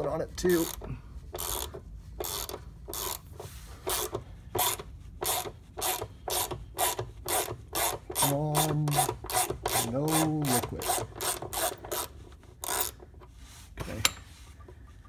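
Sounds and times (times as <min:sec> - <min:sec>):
ratchet wrench clicking: 0:00.6 - 0:13.1.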